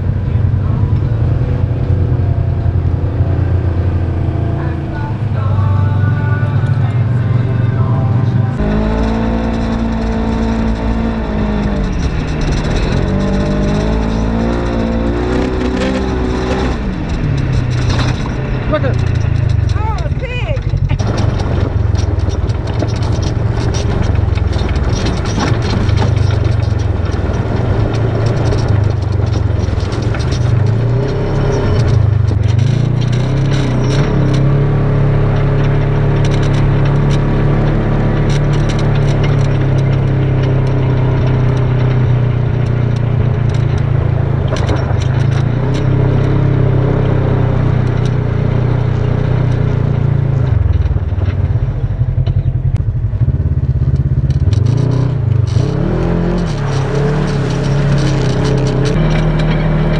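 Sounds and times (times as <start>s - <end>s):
off-road vehicle engine running: 0.0s - 59.9s
tyres crunching on gravel: 54.6s - 59.9s.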